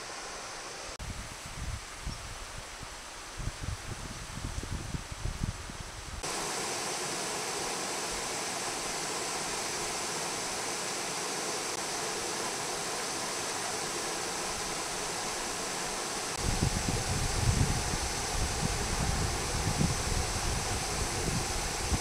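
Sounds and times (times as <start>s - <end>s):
creek water rushing over rocks: 6.2s - 22.0s.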